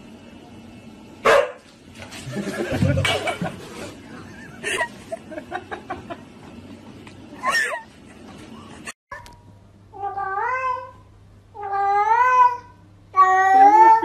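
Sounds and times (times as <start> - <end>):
dog barking: 1.2 - 1.6.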